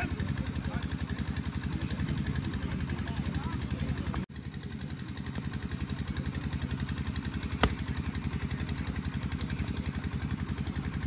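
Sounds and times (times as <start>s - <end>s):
small engine idling: 0.0s - 11.0s
sharp crack: 7.4s - 8.7s.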